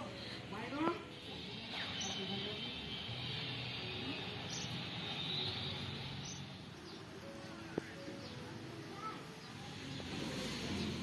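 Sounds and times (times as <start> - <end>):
bird chirps: 4.4 - 7.1.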